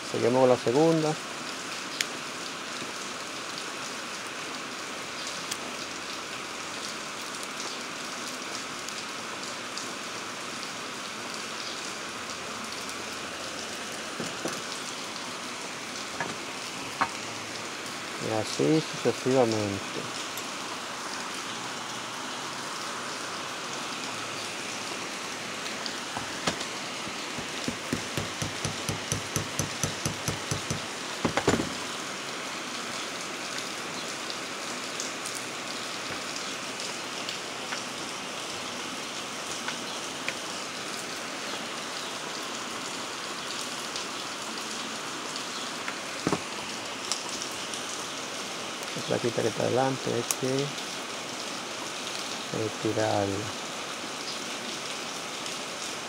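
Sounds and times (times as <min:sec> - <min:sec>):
steady rain-like hiss: 0:00.0 - 0:56.0
light taps on metal core: 0:27.6 - 0:31.6
sharp knock: 0:27.7 - 0:31.7.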